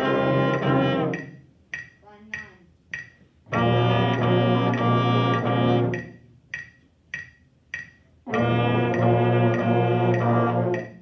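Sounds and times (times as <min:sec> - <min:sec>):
brass ensemble playing: 0:00.0 - 0:01.4, 0:03.5 - 0:06.2, 0:08.3 - 0:11.0
metronome clicking: 0:00.5 - 0:03.3, 0:04.1 - 0:11.0.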